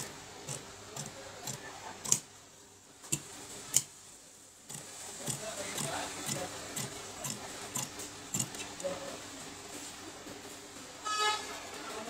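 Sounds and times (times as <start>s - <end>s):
shears snipping fabric: 4.7s - 9.0s.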